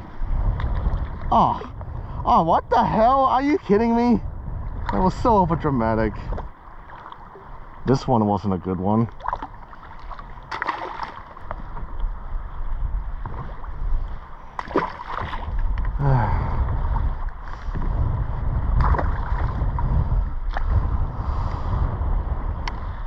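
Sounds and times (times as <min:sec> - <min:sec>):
water lapping around kayak: 0:00.0 - 0:23.0
wind rumbling on microphone: 0:00.0 - 0:23.0.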